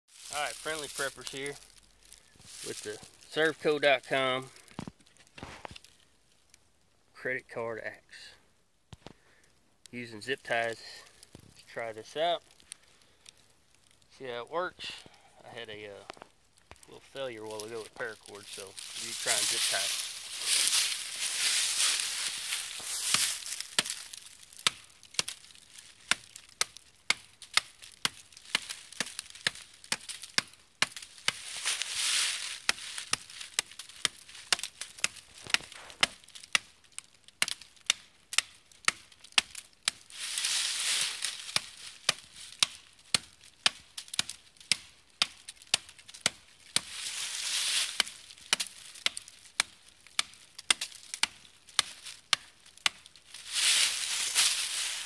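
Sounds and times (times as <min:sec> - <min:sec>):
rustling: 0:00.1 - 0:06.1, 0:15.6 - 0:36.6, 0:39.9 - 0:42.9, 0:45.4 - 0:55.0
small axe chopping sapling: 0:23.0 - 0:25.4, 0:26.1 - 0:31.7.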